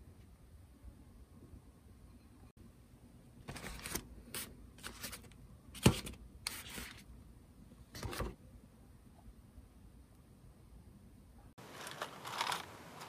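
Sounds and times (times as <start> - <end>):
rustling and scraping of objects: 11.6 - 13.0.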